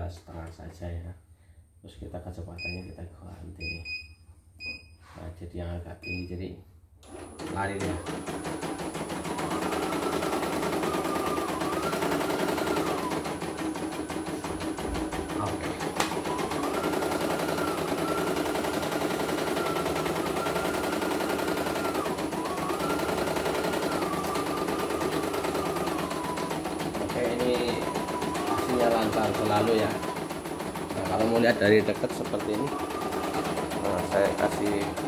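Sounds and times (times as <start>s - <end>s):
embroidery machine needle clatter: 7.0s - 35.0s.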